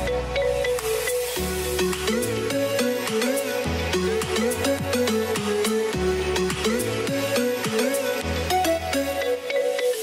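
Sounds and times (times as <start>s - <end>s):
electronic music: 0.0s - 10.0s.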